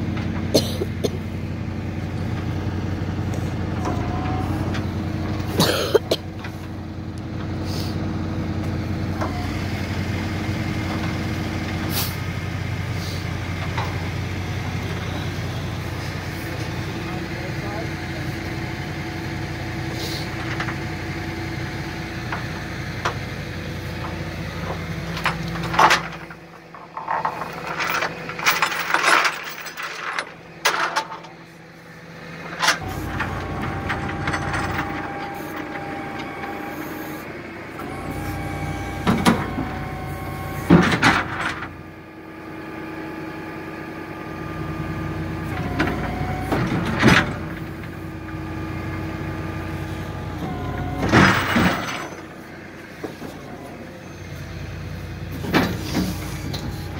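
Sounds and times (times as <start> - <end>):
truck engine running: 0.0 - 56.9
hydraulic whine: 0.9 - 31.2, 31.8 - 56.9
metal clanks and bangs: 23.9 - 31.5, 32.5 - 36.4, 40.6 - 41.8, 50.5 - 53.6.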